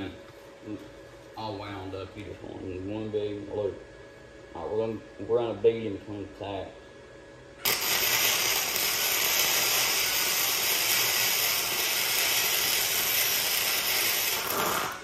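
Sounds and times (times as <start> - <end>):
arc welding hiss: 7.6 - 15.0.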